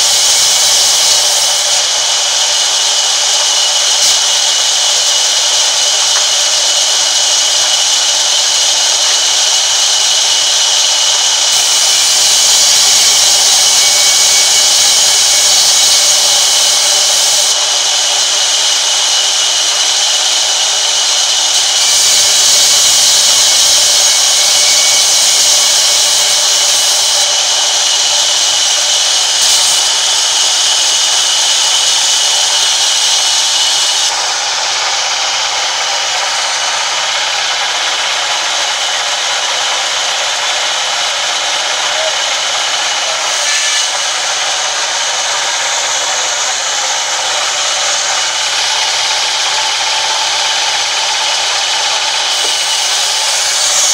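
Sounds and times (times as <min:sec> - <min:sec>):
band saw ripping wood: 0:33.6 - 0:53.9.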